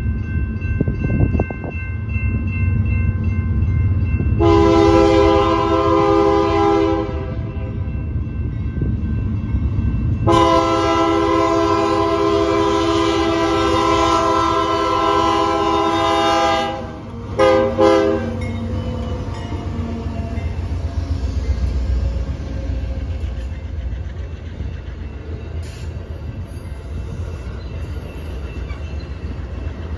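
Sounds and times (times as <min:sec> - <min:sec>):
train rumbling: 0:00.0 - 0:29.9
locomotive horn blasts: 0:04.4 - 0:07.7, 0:10.3 - 0:18.4.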